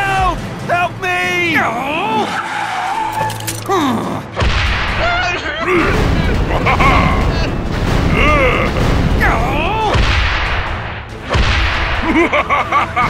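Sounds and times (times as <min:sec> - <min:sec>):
squeaky sliding tones: 0:02.3 - 0:03.7
sudden blast: 0:04.4 - 0:12.2.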